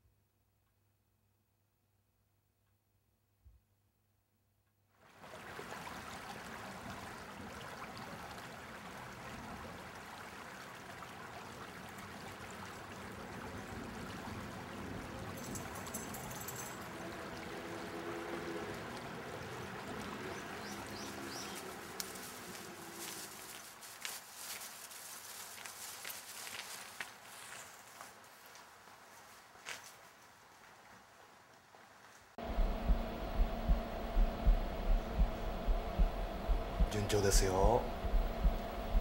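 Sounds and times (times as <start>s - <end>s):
stream water flowing: 5.0s - 27.5s, 32.4s - 39.0s.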